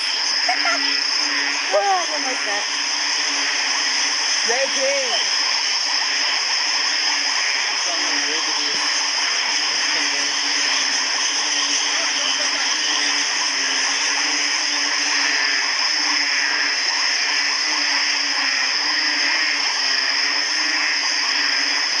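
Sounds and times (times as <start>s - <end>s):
frogs calling: 0.0s - 22.0s
insects calling: 0.0s - 22.0s.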